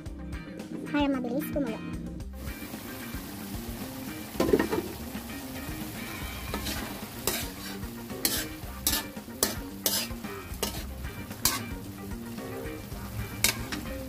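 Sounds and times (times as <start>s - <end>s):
meat sizzling in a wok: 2.3s - 14.0s
ladle scraping a pan: 6.1s - 11.8s, 13.4s - 14.0s.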